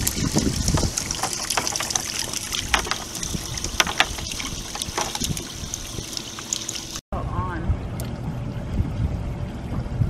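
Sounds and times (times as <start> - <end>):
wind on microphone: 0.0 - 1.4, 2.2 - 6.1, 7.3 - 10.0.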